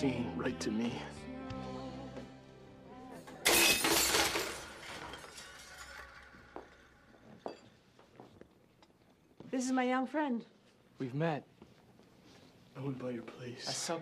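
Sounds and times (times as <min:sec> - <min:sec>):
broken glass clinking: 0:03.4 - 0:07.8
glassware crashing and shattering: 0:03.4 - 0:07.8.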